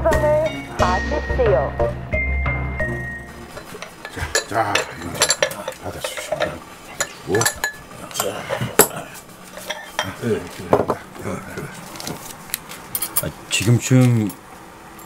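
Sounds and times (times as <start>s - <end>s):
utensils clinking on dishes: 3.4s - 11.0s, 12.8s - 14.4s.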